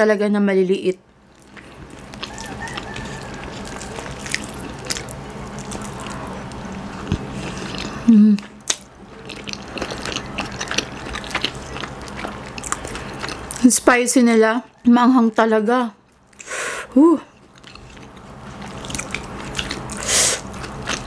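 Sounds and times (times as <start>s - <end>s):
steady low hum: 0.0s - 21.0s
wet chewing with mouth clicks: 1.3s - 13.7s, 17.2s - 21.0s
person humming: 8.0s - 8.5s.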